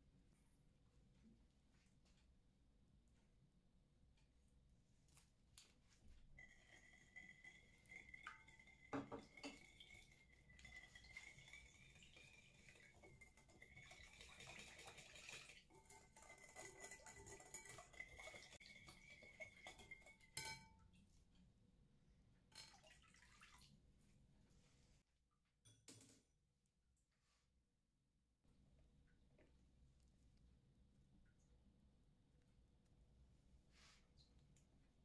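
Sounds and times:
whisk clinking against glass bowl: 0:06.6 - 0:20.7.

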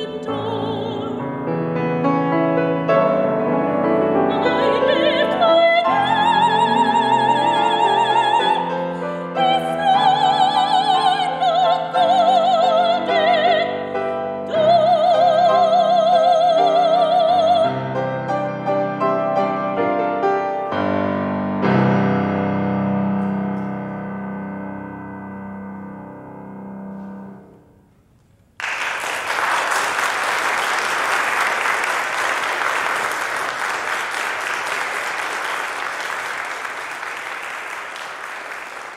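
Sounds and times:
piano playing: 0:00.0 - 0:28.1
audience applause: 0:28.6 - 0:38.9.

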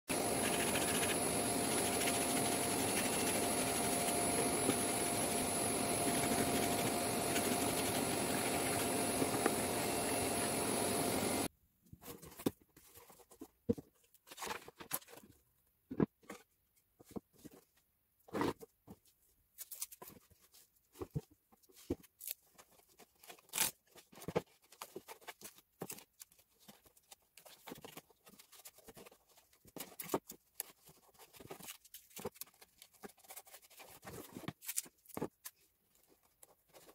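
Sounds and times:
dust extractor whining: 0:00.1 - 0:11.5
cardboard box and boards handled: 0:12.0 - 0:36.9.

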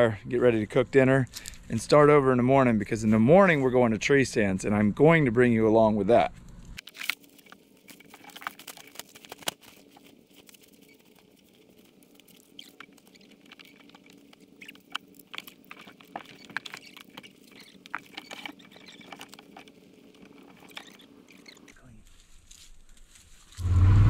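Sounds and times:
rustling in dry leaves: 0:06.8 - 0:21.1, 0:21.8 - 0:24.0.

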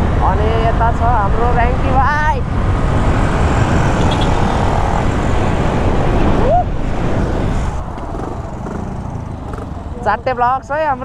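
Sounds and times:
wind buffeting microphone: 0:00.0 - 0:11.0
motorcycle engine running: 0:07.8 - 0:11.0.

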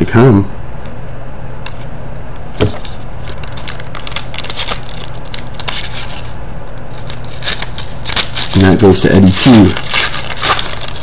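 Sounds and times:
steady low hum: 0:00.0 - 0:11.0
foil wrapper crinkling and tearing: 0:02.6 - 0:11.0.

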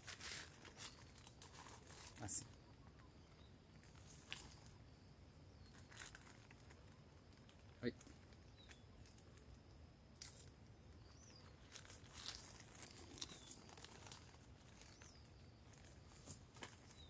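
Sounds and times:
bird chirps: 0:08.4 - 0:09.8, 0:10.8 - 0:16.2
plastic film crinkling: 0:11.7 - 0:15.0.

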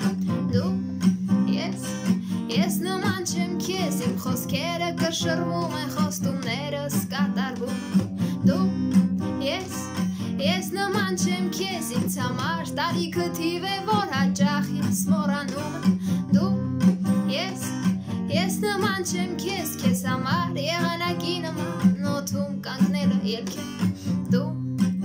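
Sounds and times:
acoustic guitar chords: 0:00.0 - 0:25.0
woman singing: 0:00.0 - 0:25.0.

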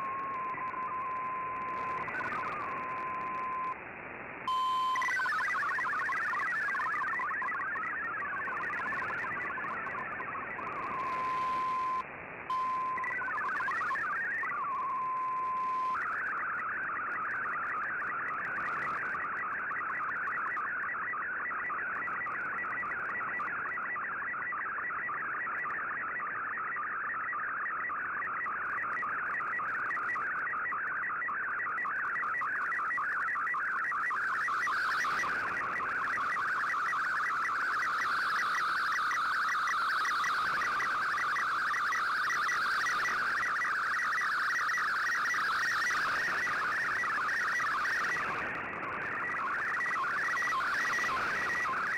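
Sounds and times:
warbling digital data tones: 0:00.0 - 0:03.8, 0:04.5 - 0:51.9.

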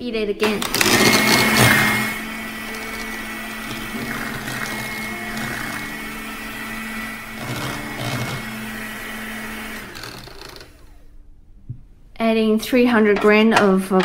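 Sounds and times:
electric mixer running: 0:00.4 - 0:11.2.

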